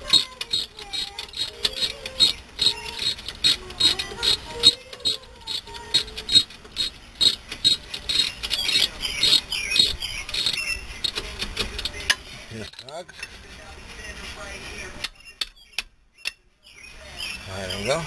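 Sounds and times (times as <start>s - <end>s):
ratchet wrench clicking: 0.0s - 12.2s
metal handling noises: 0.0s - 13.6s.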